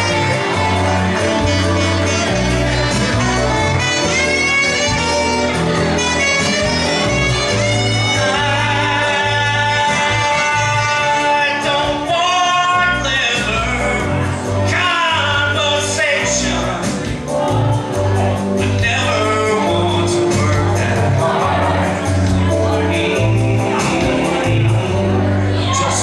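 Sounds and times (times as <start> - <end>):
recorded backing track: 0.0 - 26.0
man singing into a microphone: 7.6 - 17.8, 18.6 - 26.0.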